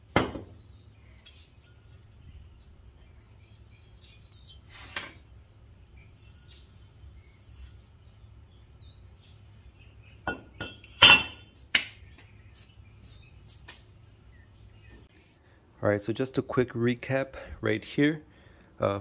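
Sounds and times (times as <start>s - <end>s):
faint bird chirps: 0.4s - 10.9s, 11.9s - 15.6s.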